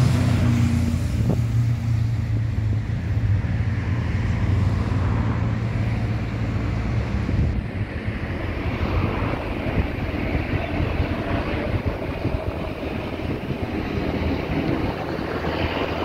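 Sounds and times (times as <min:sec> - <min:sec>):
road traffic noise: 0:00.0 - 0:16.0
vehicle engine hum: 0:00.0 - 0:16.0.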